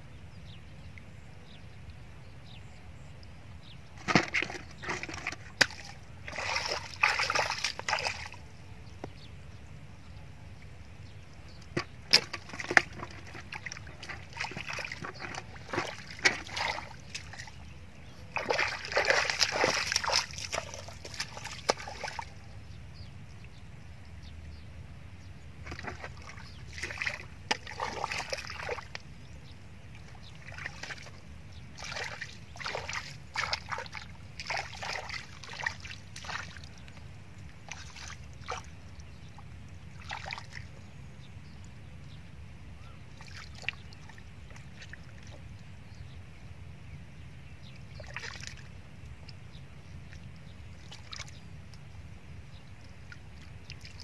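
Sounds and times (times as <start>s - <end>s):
mud squelching and splashing: 4.0s - 8.5s, 11.4s - 22.5s, 25.6s - 29.1s, 29.9s - 40.8s, 47.9s - 48.7s, 53.0s - 54.0s
sharp slaps in mud: 5.6s - 8.4s.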